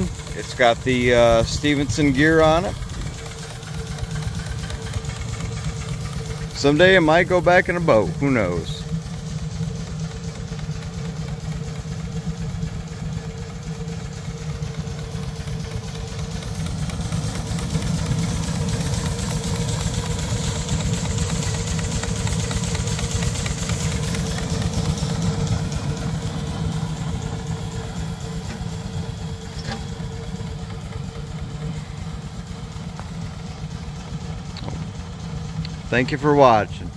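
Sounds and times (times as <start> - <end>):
steam engine running: 0.0 - 36.9.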